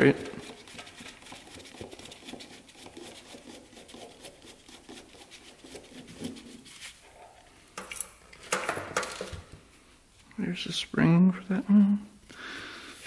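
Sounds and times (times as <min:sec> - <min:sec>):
gloved hands rubbing: 0:00.0 - 0:07.3.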